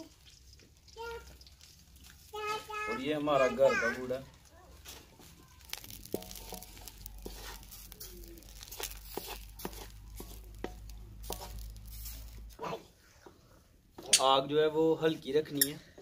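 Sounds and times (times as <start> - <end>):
wooden spatula scraping a pan: 3.4 - 14.0.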